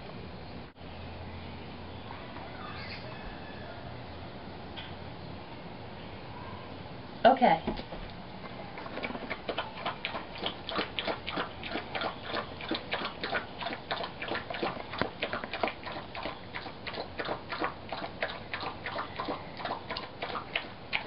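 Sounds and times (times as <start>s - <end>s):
dog lapping and chewing food: 8.4s - 21.0s.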